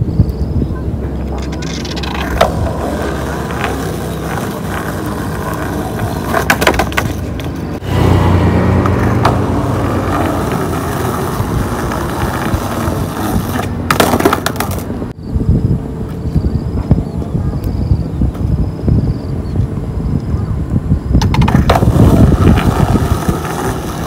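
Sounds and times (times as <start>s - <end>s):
skateboard wheels rolling on concrete: 0.0s - 15.2s, 18.0s - 24.0s
skateboard wooden clacks: 1.2s - 7.8s, 10.1s - 15.0s, 21.2s - 24.0s.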